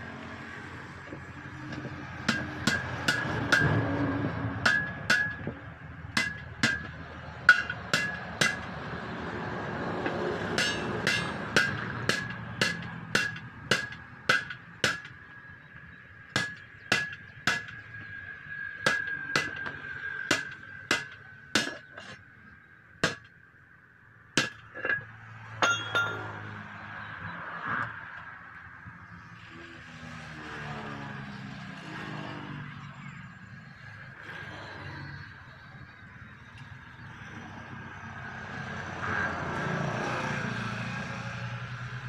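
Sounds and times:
hammer striking steel wheel rim: 1.7s - 9.1s, 9.9s - 15.2s, 16.4s - 22.2s, 23.0s - 23.3s, 24.4s - 26.4s.

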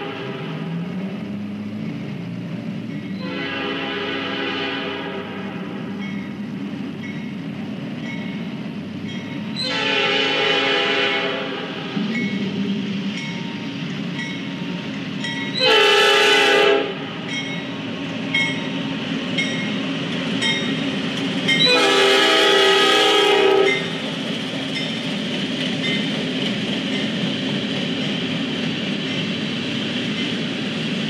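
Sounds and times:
locomotive air horn blasts: 0.0s - 0.6s, 3.2s - 5.8s, 9.6s - 12.0s, 15.6s - 17.1s, 21.6s - 23.9s
train rumble: 0.0s - 31.0s
crossing bell ringing: 5.9s - 6.4s, 7.0s - 9.6s, 12.1s - 15.7s, 17.2s - 19.8s, 20.4s - 21.9s, 23.6s - 24.0s.

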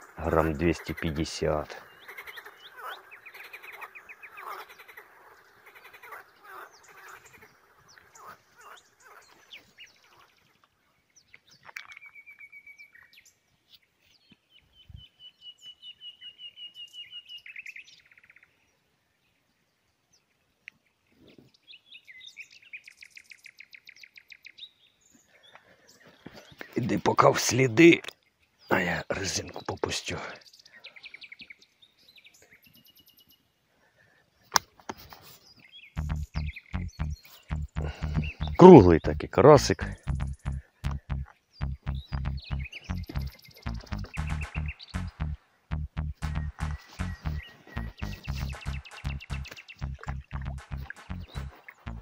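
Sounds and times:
small birds chirping and trilling: 0.0s - 45.4s, 46.2s - 52.0s.

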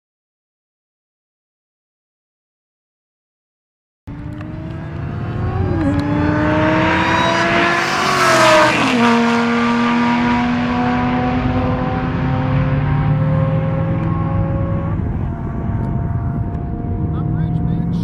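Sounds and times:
cars accelerating at full throttle: 4.1s - 18.0s
gear change: 4.1s - 18.0s.

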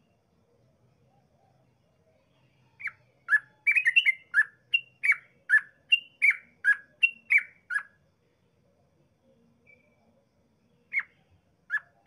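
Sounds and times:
bulbul singing whistled notes: 2.7s - 8.0s, 9.6s - 10.0s, 10.7s - 12.0s.

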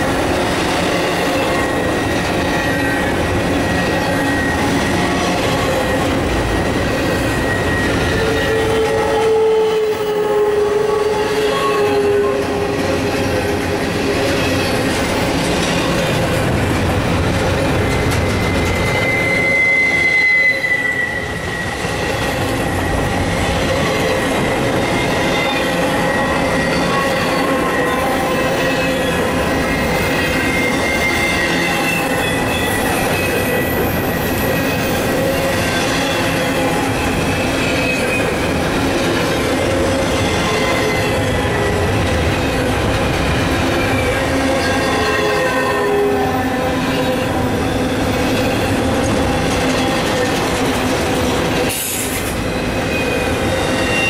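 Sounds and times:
train wheels rolling on rails: 0.0s - 54.0s
high wheel squeals: 1.2s - 13.4s, 17.7s - 38.7s, 51.8s - 54.0s.

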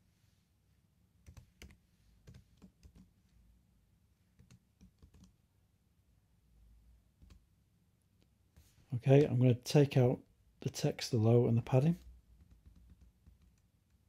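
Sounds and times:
computer keyboard keystrokes: 1.2s - 3.1s, 4.4s - 5.3s.

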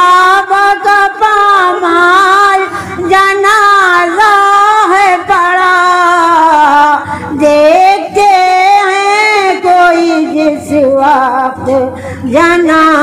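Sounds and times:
woman chanting a lament: 0.0s - 13.0s
woman breathing: 2.7s - 3.1s, 7.0s - 7.4s, 11.9s - 12.3s.

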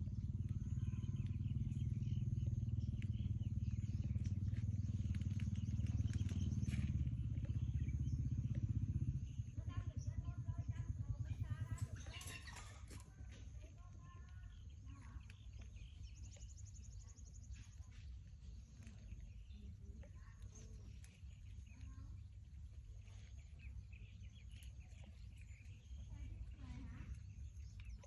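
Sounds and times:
high bird trill: 0.0s - 17.6s
low background rumble: 0.0s - 28.0s
small bird chirps: 0.0s - 28.0s.

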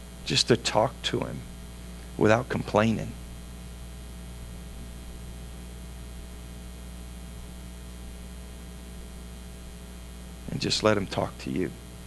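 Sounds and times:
low mains hum: 0.0s - 12.0s.

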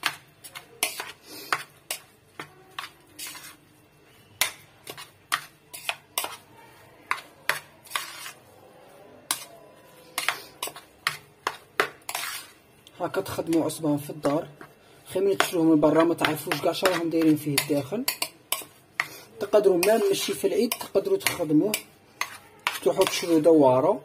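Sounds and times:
metal spoon clinking against bowl: 15.4s - 23.5s.

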